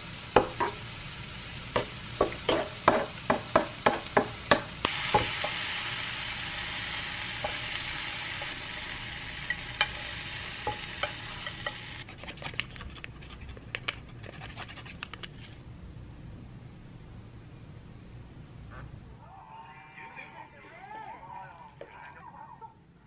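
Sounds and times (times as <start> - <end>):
mushrooms sizzling in a frying pan: 0.0 - 12.1.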